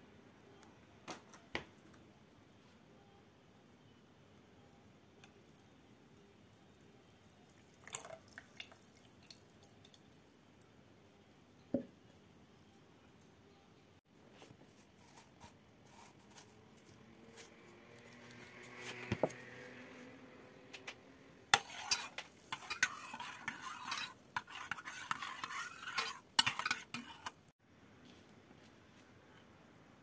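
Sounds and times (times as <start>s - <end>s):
metal spoon stirring in pot: 21.5s - 27.5s.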